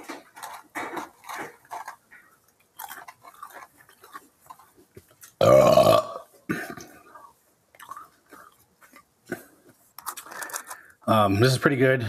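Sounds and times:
paper packaging rustling: 0.0 - 5.4, 7.8 - 11.0
man chewing food: 0.0 - 11.1
loud burp: 5.4 - 6.9.

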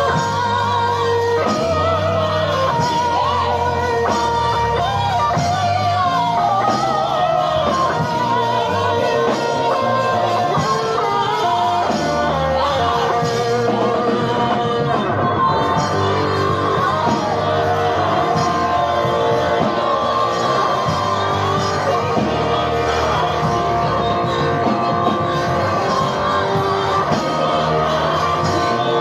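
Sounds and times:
electric guitar lead melody: 0.0 - 29.0
singing: 0.0 - 29.0
steady bass line: 0.0 - 29.0.

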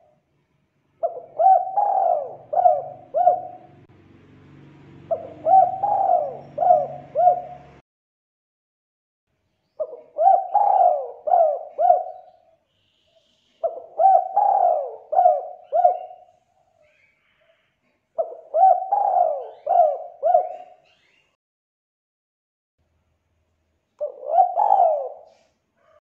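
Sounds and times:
dove cooing: 1.0 - 3.9, 5.0 - 7.8, 9.8 - 12.5, 13.6 - 16.4, 18.2 - 21.1, 24.0 - 26.0.

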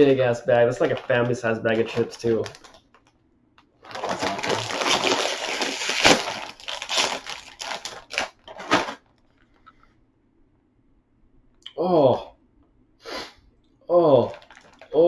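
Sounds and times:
plastic chip bag crinkling: 0.0 - 3.1, 3.7 - 9.7, 14.1 - 15.0.

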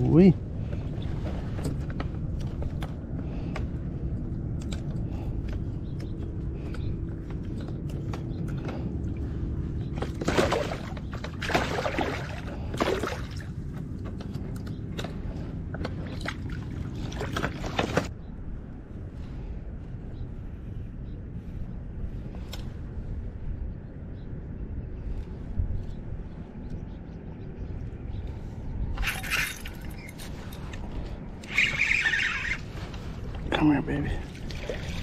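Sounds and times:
steady low rumble: 0.0 - 35.0
water splashing: 10.1 - 13.5, 34.2 - 35.0.

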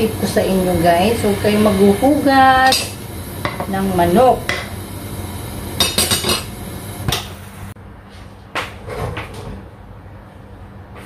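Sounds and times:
low steady hum: 0.0 - 7.8.

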